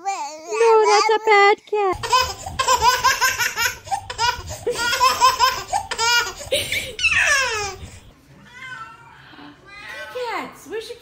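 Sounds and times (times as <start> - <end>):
baby laughing: 2.0 - 8.0.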